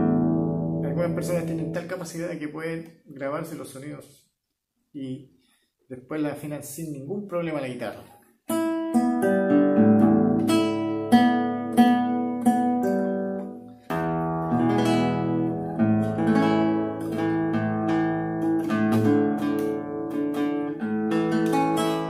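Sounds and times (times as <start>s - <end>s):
acoustic guitar chords: 0.0s - 2.1s, 8.5s - 22.0s
acoustic guitar plucked notes: 0.0s - 2.1s, 8.5s - 22.0s.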